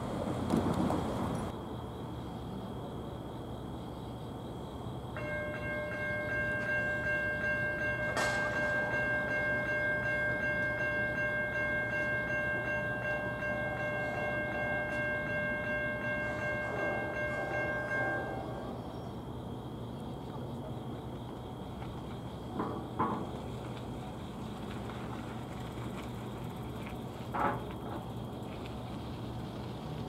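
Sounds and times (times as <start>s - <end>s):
crossing warning bell ringing: 5.2s - 19.2s
sharp clank: 8.0s - 9.0s.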